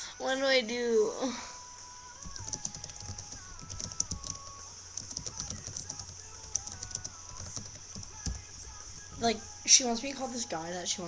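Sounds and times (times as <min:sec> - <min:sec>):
laptop keyboard typing: 0:02.2 - 0:09.3.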